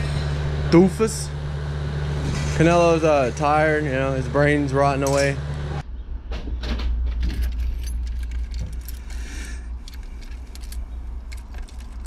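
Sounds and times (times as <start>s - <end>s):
steady low rumble: 0.0s - 12.0s
keys jangling: 7.3s - 12.0s.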